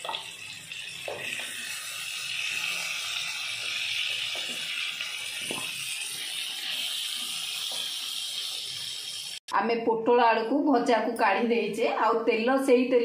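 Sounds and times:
frying hiss: 0.0s - 9.5s.

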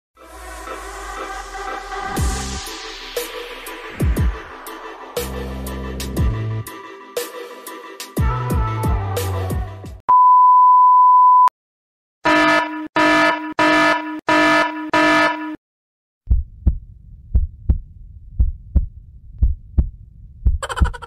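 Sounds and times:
heartbeat thuds: 16.3s - 21.0s.

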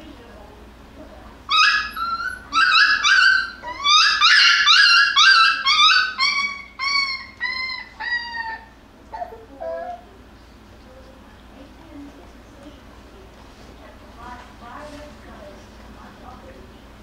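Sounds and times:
puppy yelping: 1.5s - 10.1s.

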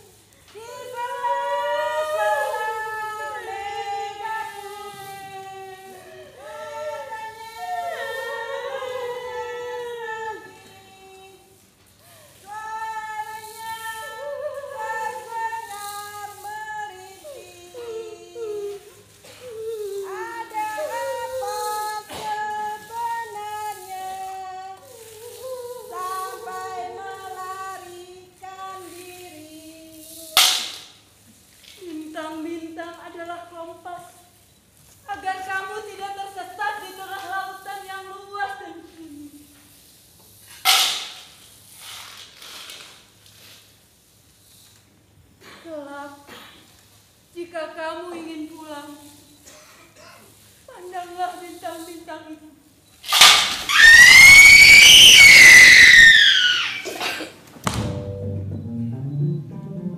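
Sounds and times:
woman singing long held notes: 0.0s - 30.6s, 35.0s - 39.6s.

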